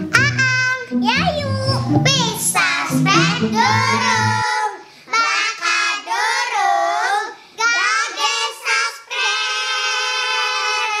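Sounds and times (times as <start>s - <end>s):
girls singing together: 2.3s - 11.0s.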